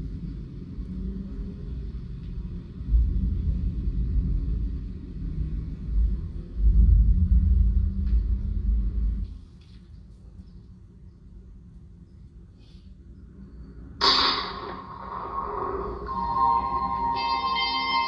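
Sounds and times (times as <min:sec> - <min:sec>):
low uneven rumble: 0:00.0 - 0:13.9.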